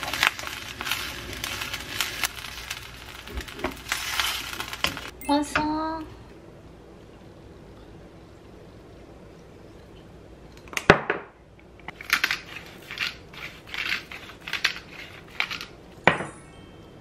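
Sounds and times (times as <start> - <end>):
pepper grinder crunching: 11.9 - 15.8.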